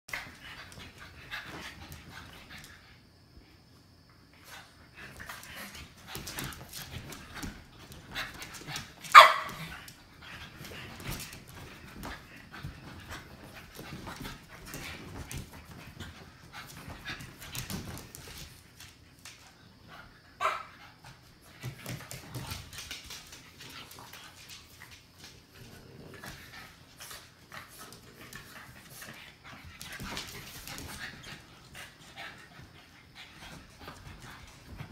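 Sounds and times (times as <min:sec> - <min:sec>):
puppies scuffling: 0:05.0 - 0:19.6, 0:21.1 - 0:34.9
puppy yaps: 0:09.1 - 0:09.6.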